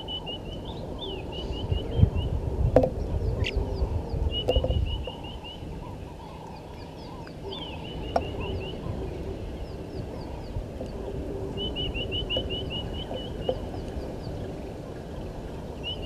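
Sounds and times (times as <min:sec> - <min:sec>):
birds chirping: 0:00.0 - 0:16.0.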